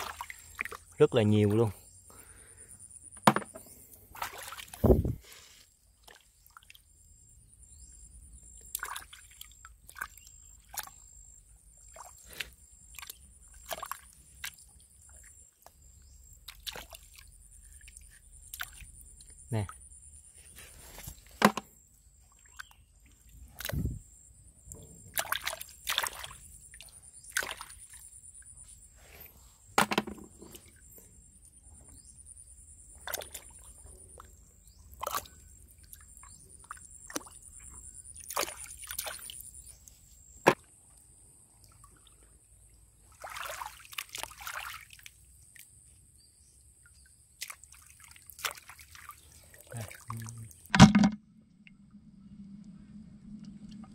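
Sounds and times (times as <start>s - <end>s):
hands splashing in muddy water: 0.0s - 0.9s, 4.1s - 5.2s, 13.0s - 14.6s, 16.5s - 17.2s, 25.1s - 28.0s, 38.2s - 39.4s, 43.1s - 45.1s, 47.4s - 51.1s.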